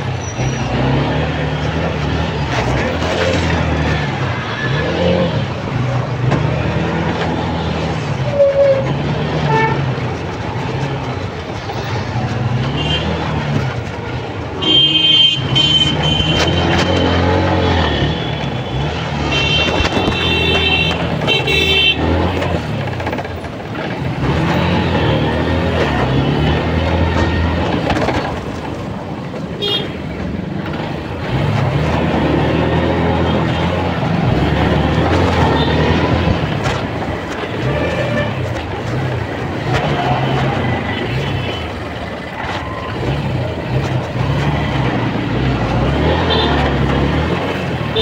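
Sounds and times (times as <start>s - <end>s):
traffic engines running: 0.0s - 48.0s
vehicle horns honking: 8.2s - 10.0s, 14.6s - 22.7s, 29.6s - 30.0s, 39.8s - 41.9s, 46.0s - 46.9s.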